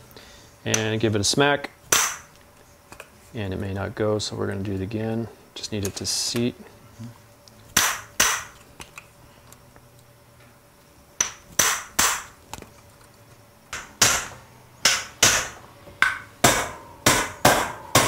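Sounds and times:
hammer striking metal tool: 13.7 - 18.0.

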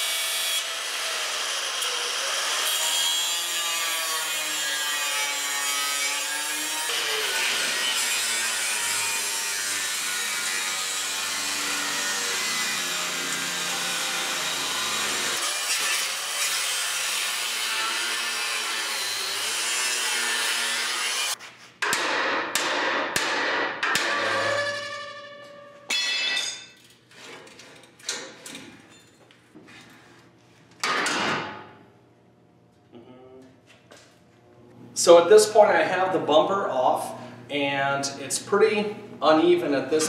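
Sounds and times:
angle grinder cutting steel: 0.0 - 21.4.

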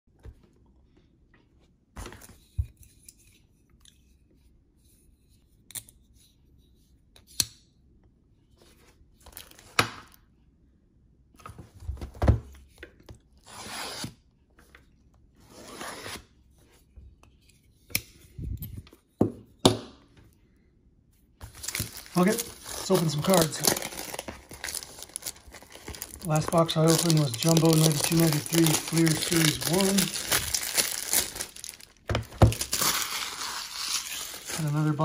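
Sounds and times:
packaging tearing: 21.5 - 35.0.

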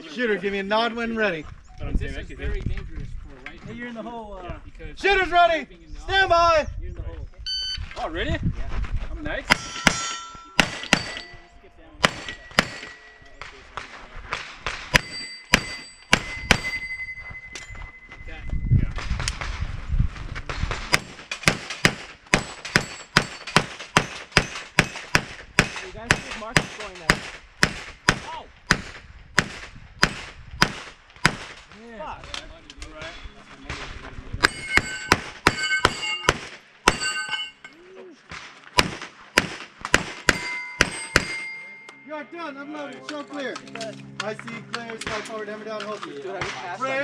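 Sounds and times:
rapid pistol shots: 9.5 - 11.2, 12.0 - 13.0, 20.7 - 31.6, 38.3 - 41.4
steel targets ringing: 9.5 - 13.4, 14.9 - 18.3, 22.4 - 25.0, 34.4 - 37.8, 40.2 - 43.1.

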